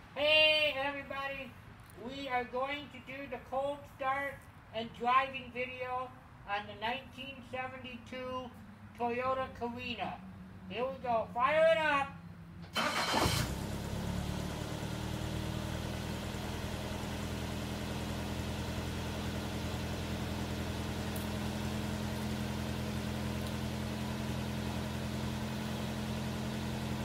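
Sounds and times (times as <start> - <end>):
car engine starting and idling: 12.2 - 27.0.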